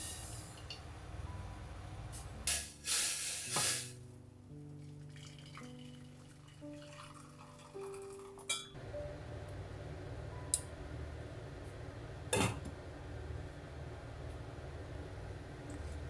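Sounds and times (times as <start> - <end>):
glass lid clinking on pot: 8.5 - 8.8.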